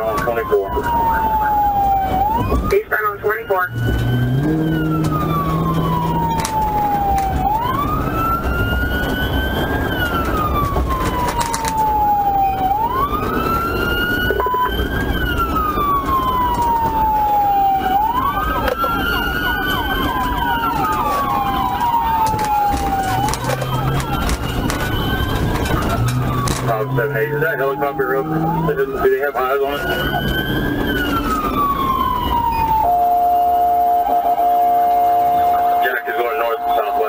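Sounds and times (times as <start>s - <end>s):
engine and road noise: 0.0s - 37.0s
police siren wailing: 0.0s - 37.0s.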